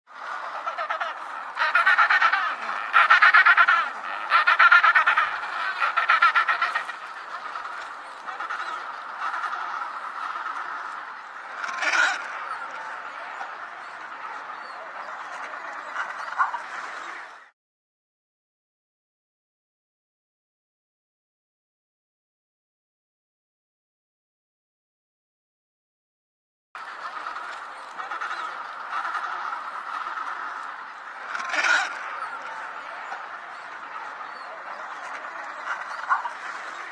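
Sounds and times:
penguins calling: 0.2s - 17.2s, 26.8s - 36.9s
penguin honking calls: 0.4s - 7.1s.

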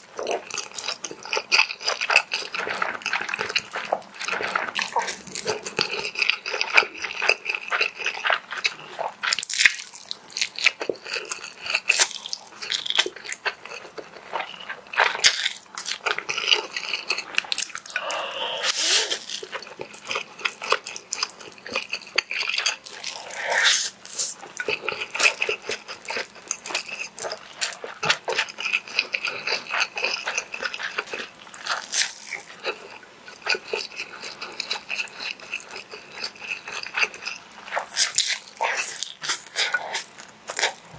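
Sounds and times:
wet chewing mouth sounds: 0.0s - 40.9s
slurping noodles: 16.4s - 40.9s.

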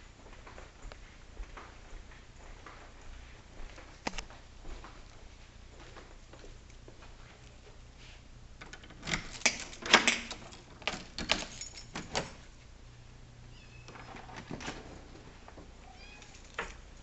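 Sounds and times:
keys jangling in a door lock: 8.6s - 12.6s, 16.2s - 17.0s
kitten meowing: 13.5s - 13.9s, 15.8s - 16.3s.

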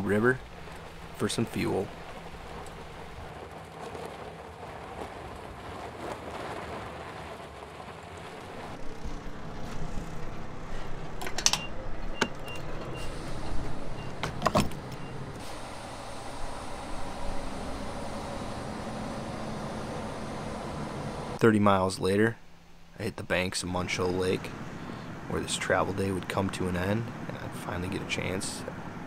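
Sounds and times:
pickup engine running: 0.0s - 21.4s
tyres rolling on gravel: 0.0s - 21.5s.

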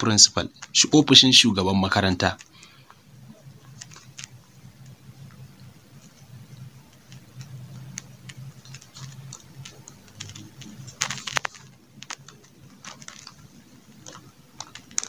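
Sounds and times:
pen clicks: 3.6s - 5.0s, 6.0s - 15.0s.

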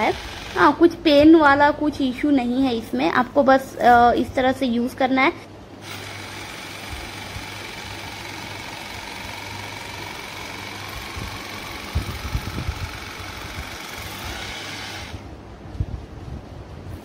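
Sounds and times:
small pump motor whining: 0.0s - 0.8s, 5.8s - 15.3s.

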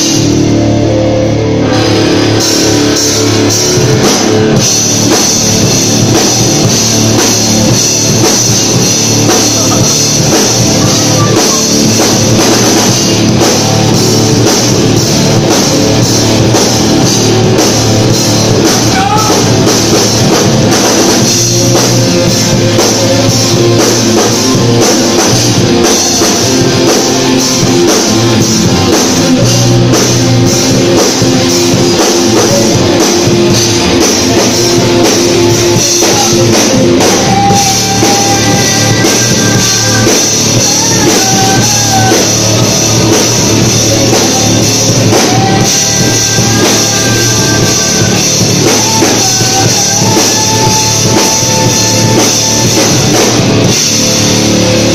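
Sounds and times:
rock band playing: 0.0s - 54.9s
woman singing: 32.3s - 53.3s.

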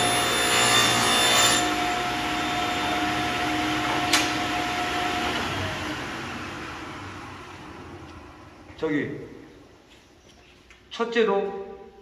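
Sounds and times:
table saw blade coasting down: 0.0s - 8.4s.

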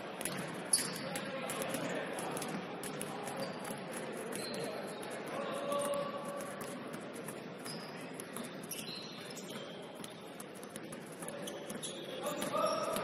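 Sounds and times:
hubbub of a game in a hall: 0.0s - 13.0s
basketball shoes squeaking: 0.2s - 13.0s.

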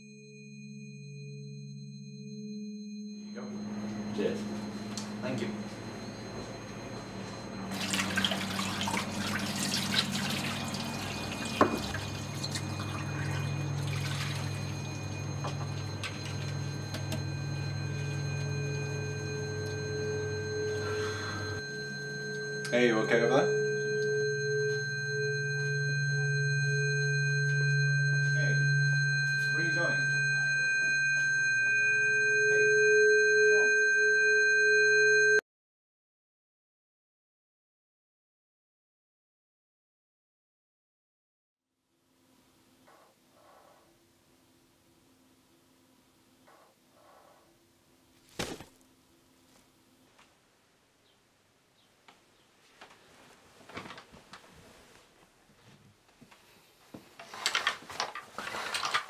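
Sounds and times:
high ringing tone: 0.0s - 35.4s
steady low hum: 0.1s - 35.3s
water dripping and trickling: 7.7s - 14.6s.

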